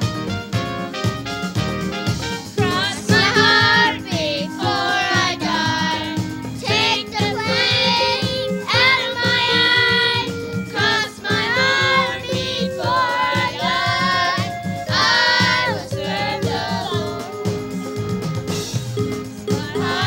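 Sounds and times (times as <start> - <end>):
instrumental backing: 0.0 - 20.0
steady drum beat: 0.0 - 20.0
children singing gospel song: 2.6 - 17.7, 19.2 - 20.0.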